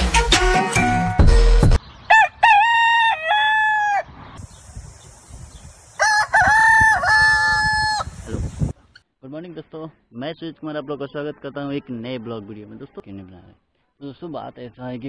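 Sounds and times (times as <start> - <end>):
loud music: 0.0 - 1.8
rooster crowing: 2.1 - 4.1, 6.0 - 8.2
steady high hiss: 4.4 - 6.4.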